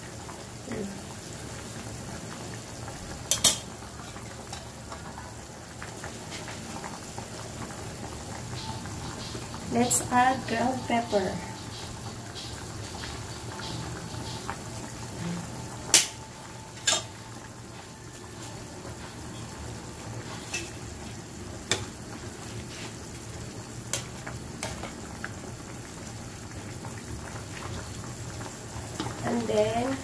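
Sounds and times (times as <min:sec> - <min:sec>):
soup boiling and bubbling: 0:00.0 - 0:30.0.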